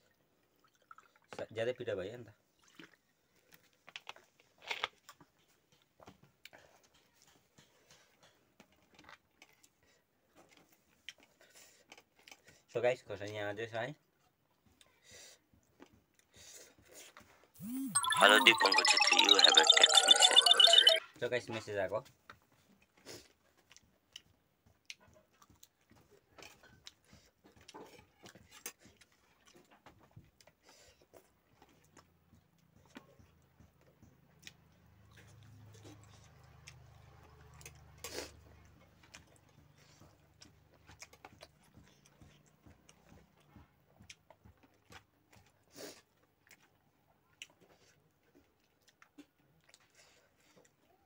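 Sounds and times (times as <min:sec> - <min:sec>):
faint chewing sounds: 0:22.9 - 0:51.0.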